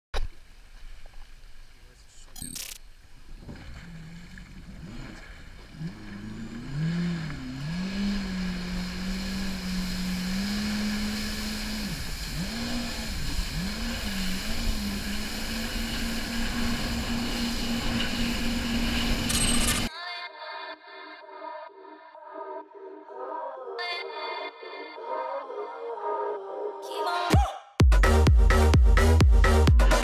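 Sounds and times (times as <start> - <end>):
jet ski engine revving: 3.2 - 19.9
rushing water hiss: 6.7 - 19.3.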